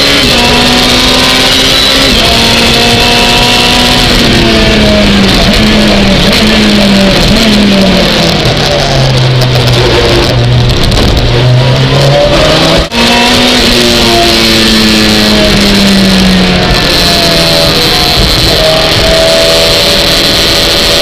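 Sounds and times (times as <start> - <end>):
race car engine: 0.0 - 21.0.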